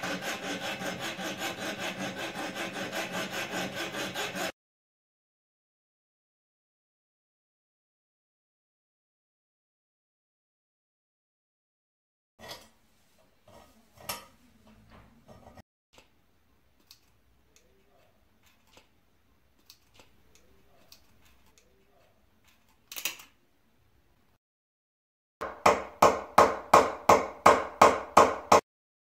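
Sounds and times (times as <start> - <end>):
steel pick scraping metal: 0.0 - 4.5.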